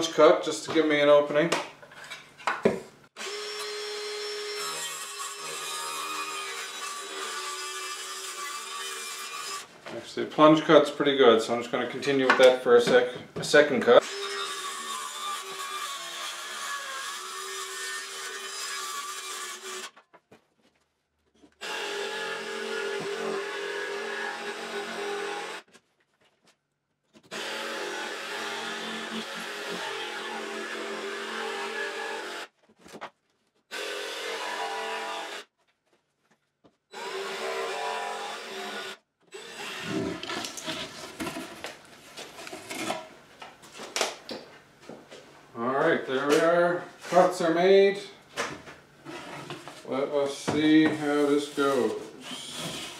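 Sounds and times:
circular saw cutting plywood: 14.0s - 20.0s, 50.5s - 52.9s
jigsaw cutting plywood: 21.6s - 25.7s, 27.3s - 32.5s, 33.7s - 35.4s, 36.9s - 41.4s, 51.7s - 52.9s.

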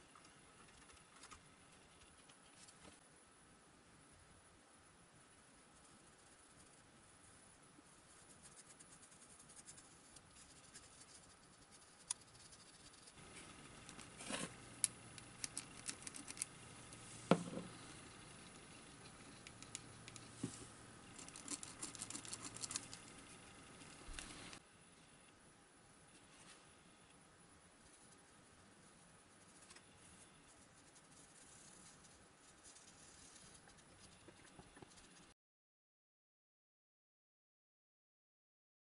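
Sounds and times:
faint low hum: 0.0s - 35.4s
small clicks taps and scratches: 8.5s - 17.0s, 18.4s - 24.6s, 32.7s - 35.3s.

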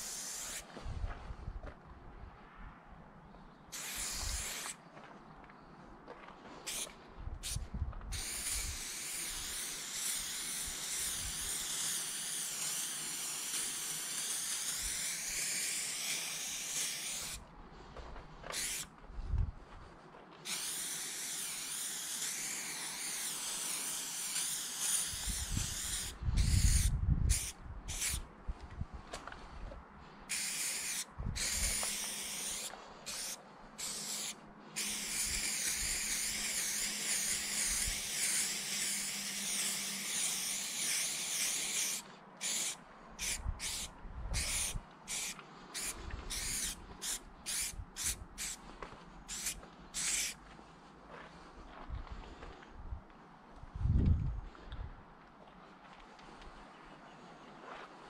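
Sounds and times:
spray can hissing: 0.0s - 0.6s, 3.7s - 4.8s, 6.7s - 17.4s, 18.5s - 18.9s, 20.4s - 28.2s, 30.3s - 48.6s, 49.3s - 50.4s.

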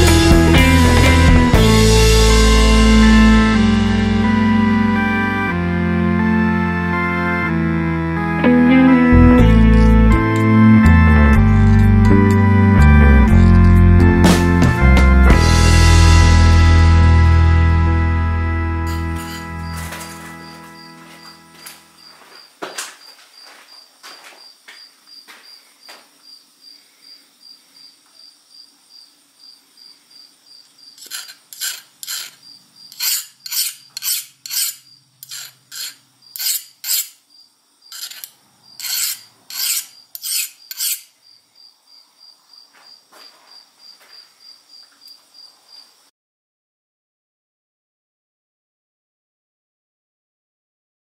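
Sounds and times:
file scraping steel blade: 18.9s - 20.2s, 31.0s - 37.2s, 37.9s - 41.1s
cricket chirping: 18.9s - 46.1s.

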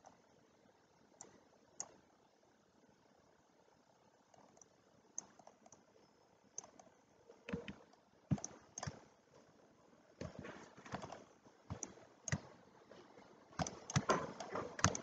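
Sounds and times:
mouse clicks: 1.2s - 2.0s, 4.3s - 5.9s, 6.6s - 9.0s, 10.2s - 12.5s, 13.6s - 15.0s
keyboard taps: 13.6s - 15.0s.

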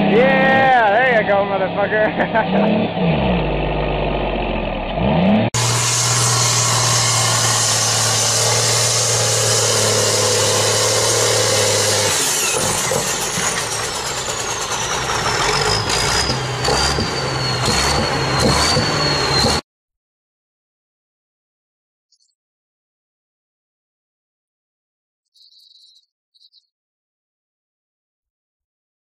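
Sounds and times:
tractor engine under heavy load: 0.0s - 19.6s.

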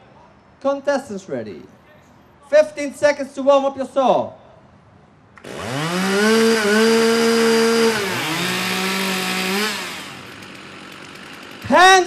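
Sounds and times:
chainsaw revving: 5.4s - 12.0s.

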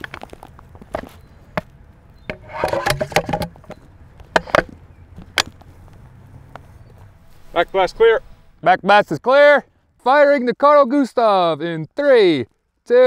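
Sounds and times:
sharp metal clicks and knocks: 1.6s - 5.7s
metal scraping and clanking: 2.3s - 4.7s.

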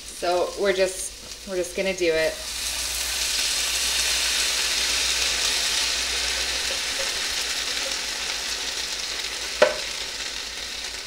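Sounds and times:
liquid sizzling in a frying pan: 0.0s - 11.0s
sharp knock: 9.6s - 9.9s.

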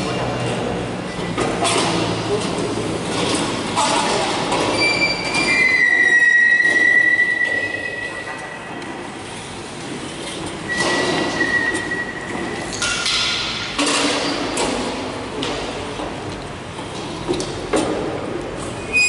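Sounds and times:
furniture legs squealing on tile: 4.7s - 8.6s.

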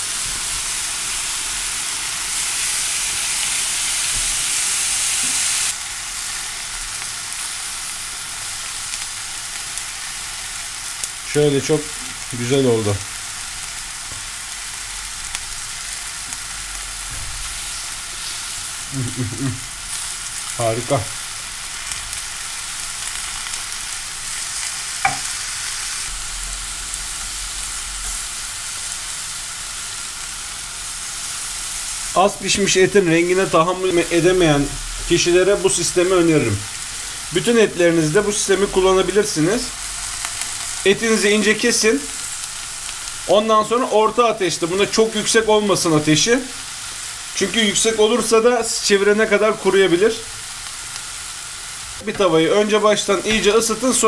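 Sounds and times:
beef slices sizzling in a pan: 0.0s - 54.0s.

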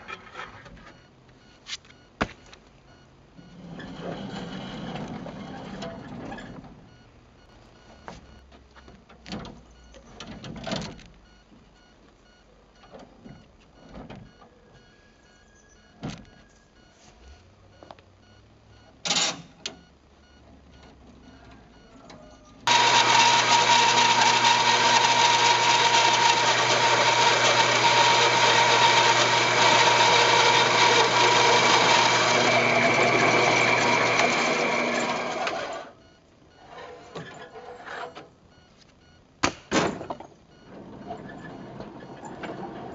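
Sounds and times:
power tool whining: 22.7s - 36.0s.

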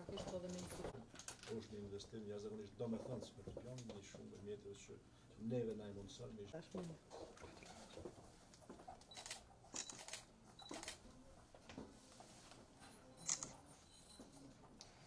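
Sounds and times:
camera shutter clicks: 9.1s - 11.0s, 13.2s - 13.5s.

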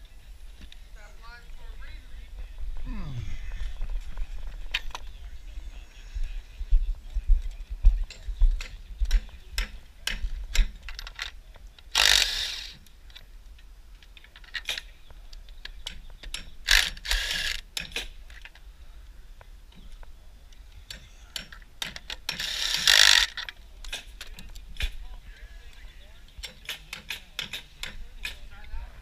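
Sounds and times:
tool clicks and knocks: 8.1s - 11.4s, 26.4s - 28.4s
raspy mechanical bursts: 11.9s - 12.8s, 16.6s - 17.6s, 22.3s - 23.4s.

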